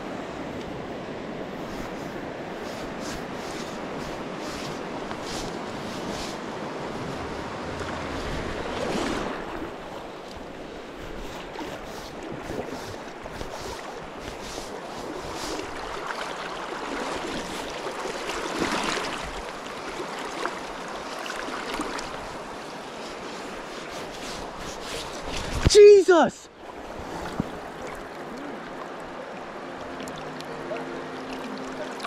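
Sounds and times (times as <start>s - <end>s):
river current rushing: 0.0s - 32.0s
wind buffeting microphone: 1.5s - 16.1s.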